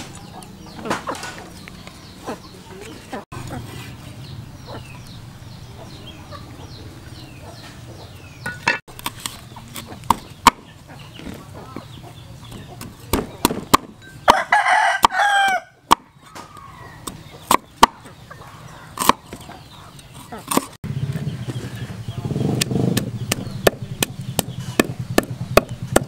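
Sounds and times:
cleaver chopping on wooden board: 0:08.5 - 0:10.7, 0:12.5 - 0:14.0, 0:17.0 - 0:18.0, 0:19.0 - 0:19.4, 0:20.5 - 0:20.7, 0:22.6 - 0:26.0
rooster crowing: 0:14.3 - 0:15.8.

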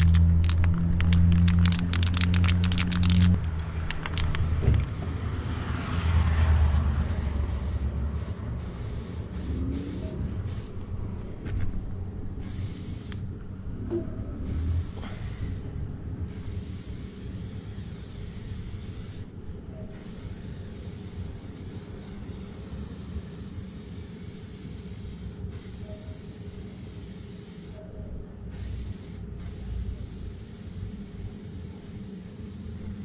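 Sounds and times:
spray paint can hissing: 0:00.0 - 0:10.8, 0:12.4 - 0:13.3, 0:14.4 - 0:15.7, 0:16.3 - 0:19.3, 0:19.9 - 0:27.8, 0:28.5 - 0:33.0.

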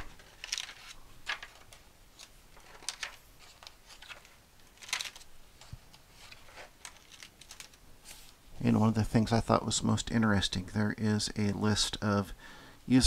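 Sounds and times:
book pages turning: 0:00.0 - 0:08.4.

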